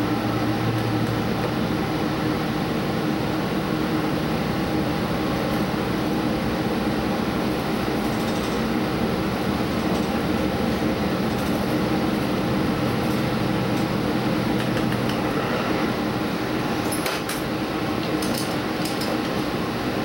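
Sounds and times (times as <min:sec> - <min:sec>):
train wheels rumbling on rail: 0:06.8 - 0:20.0.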